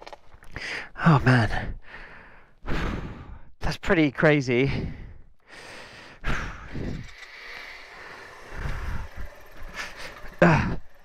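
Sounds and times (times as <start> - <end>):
person breathing and sighing: 0.5 - 3.6, 4.6 - 10.9
person grunting: 10.4 - 10.9.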